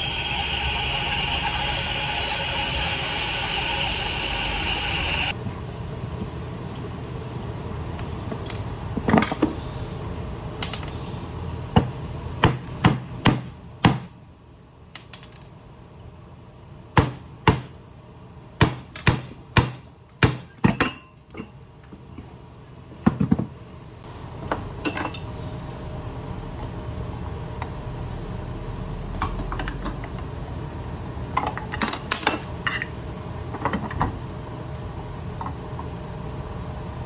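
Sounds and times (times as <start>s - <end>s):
steady noise: 0.0s - 7.9s.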